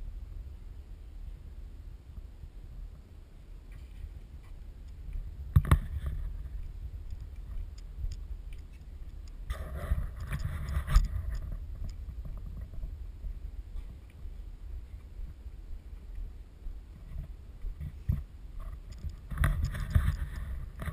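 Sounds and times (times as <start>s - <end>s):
rough scraping: 8.5s - 12.9s, 17.0s - 20.9s.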